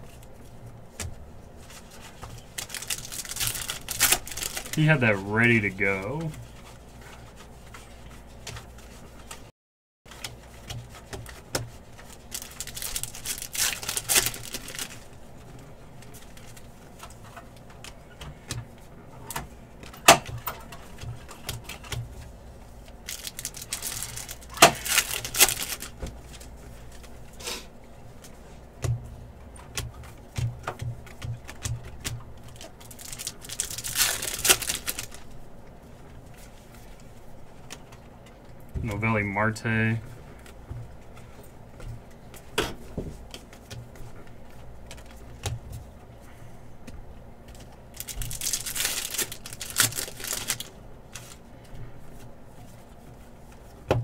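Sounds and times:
wrapper crinkling: 1.7 - 6.3, 11.8 - 15.2, 22.8 - 27.1, 32.4 - 35.4, 47.6 - 51.4.

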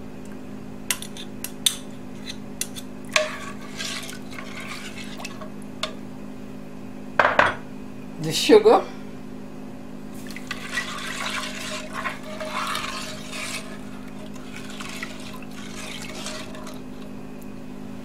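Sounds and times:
metal spoon stirring broth: 0.9 - 6.0, 10.2 - 17.1.

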